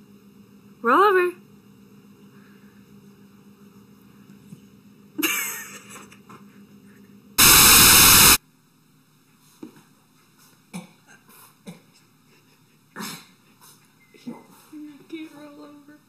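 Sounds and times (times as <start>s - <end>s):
sudden loud sound: 7.4s - 8.4s
tv static hiss: 7.4s - 8.4s.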